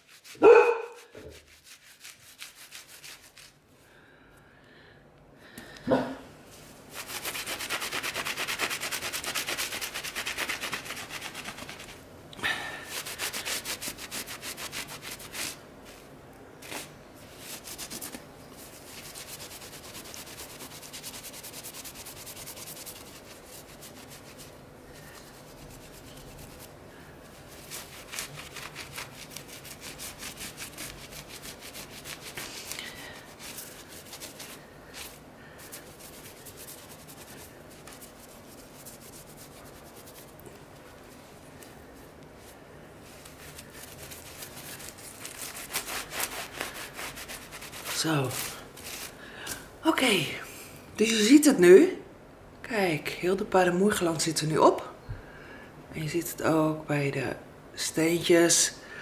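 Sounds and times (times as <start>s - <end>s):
cloth scrubbing glass tiles: 0.0s - 3.6s, 6.8s - 12.0s, 12.8s - 41.2s, 42.4s - 49.2s.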